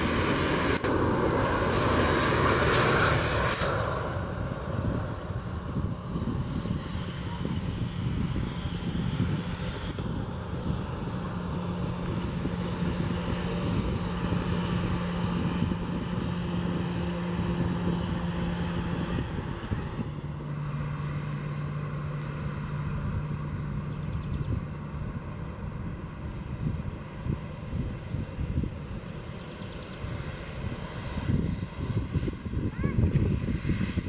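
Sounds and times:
jet engine roar: 0:00.0 - 0:34.0.

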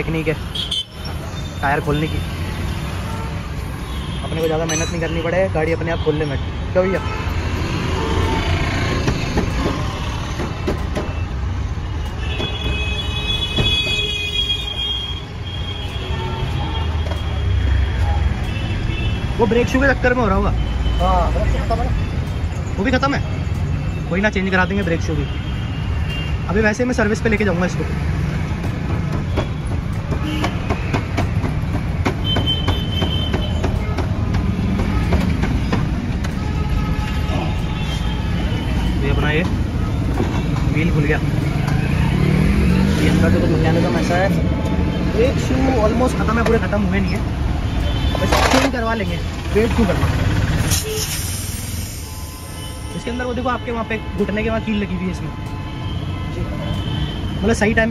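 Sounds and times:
sharp metallic clinks: 0:04.4 - 0:05.8
high-pitched brake squeal: 0:50.6 - 0:57.3.

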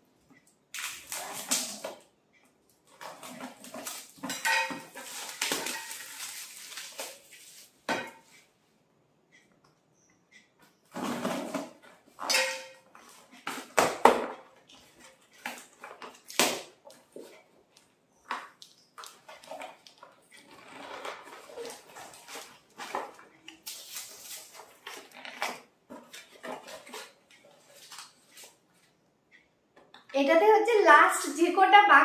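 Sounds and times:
cardboard rustling: 0:04.9 - 0:07.8, 0:20.7 - 0:28.6.

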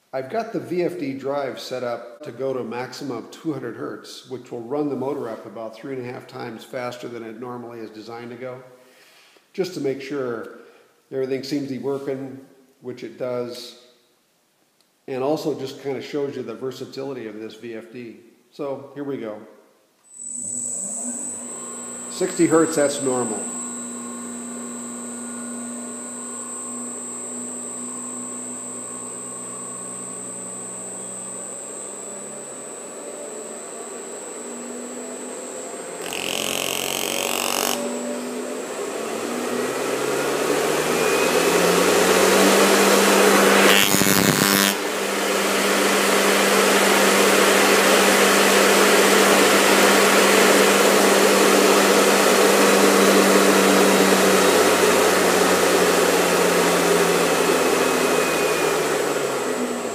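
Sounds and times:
electric motor hum rising: 0:20.1 - 0:59.9.

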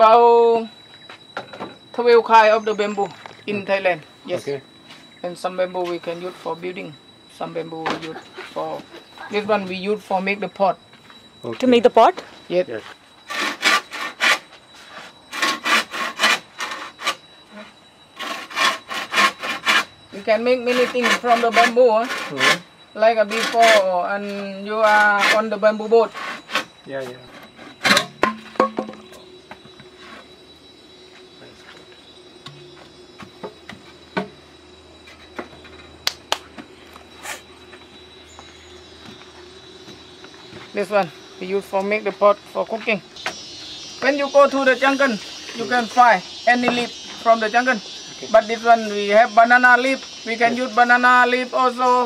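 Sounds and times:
bamboo scraping: 0:13.2 - 0:17.6, 0:18.2 - 0:19.9, 0:20.6 - 0:23.9, 0:24.8 - 0:29.1
hand saw cutting bamboo: 0:13.3 - 0:14.4, 0:15.3 - 0:17.2, 0:18.2 - 0:19.9, 0:20.7 - 0:22.6
bamboo pieces knocking on wood: 0:27.8 - 0:29.1.

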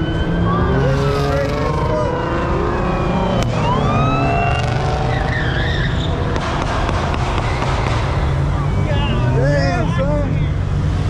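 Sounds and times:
car engines running loud: 0:00.0 - 0:11.0
high sliding squeals: 0:04.2 - 0:06.3.

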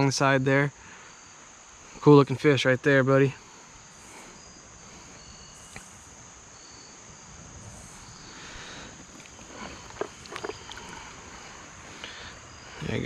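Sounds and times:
crickets and insects chirping: 0:00.0 - 0:13.0
water splashing: 0:07.7 - 0:12.6.

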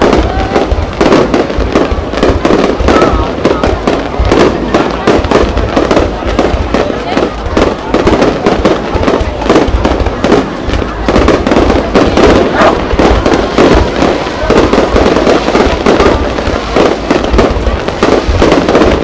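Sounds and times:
fireworks booming and crackling: 0:00.0 - 0:19.0.

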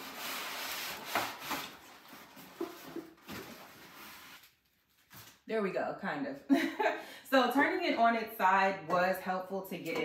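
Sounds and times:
styrofoam scraping against cardboard: 0:00.0 - 0:04.5.

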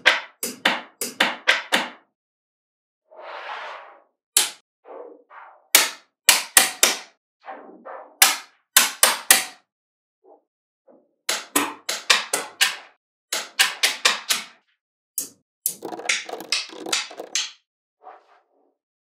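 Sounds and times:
magnetic balls clicking together: 0:15.2 - 0:17.6.

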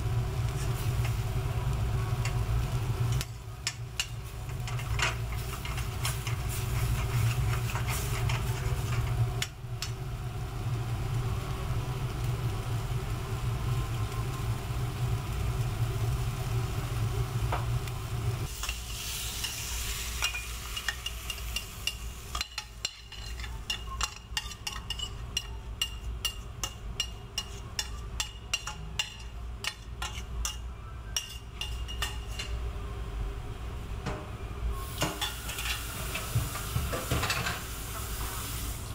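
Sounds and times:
risotto sizzling in a pan: 0:00.0 - 0:32.9, 0:34.8 - 0:38.9
metal spoon scraping onto a plate: 0:04.0 - 0:09.2, 0:20.2 - 0:30.6, 0:31.2 - 0:32.6.

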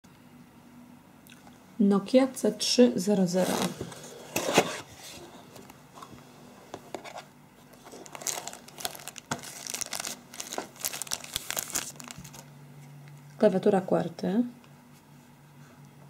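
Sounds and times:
plastic bag crinkling: 0:07.7 - 0:12.5.

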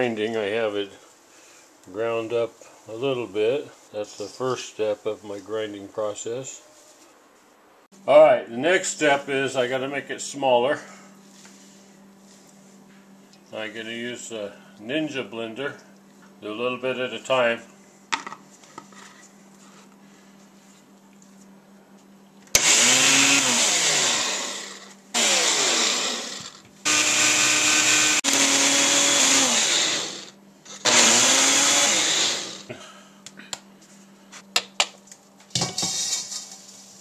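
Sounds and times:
blender pulsing: 0:22.5 - 0:32.7.

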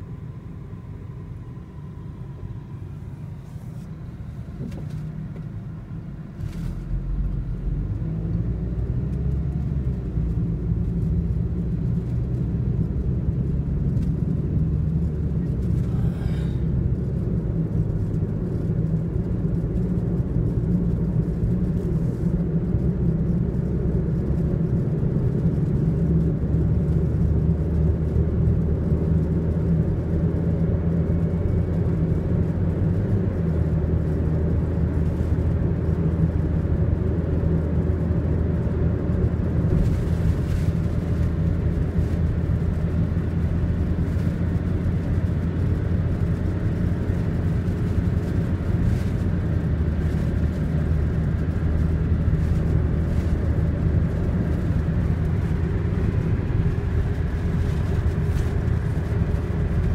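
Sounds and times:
car engine hum: 0:00.0 - 0:59.9
tyre noise on road: 0:00.0 - 0:59.9.

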